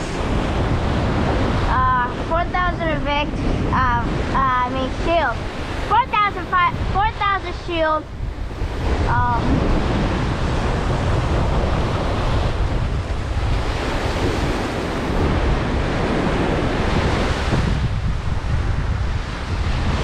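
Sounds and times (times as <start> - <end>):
surf breaking on beach: 0.0 - 20.0
wind buffeting microphone: 0.0 - 20.0.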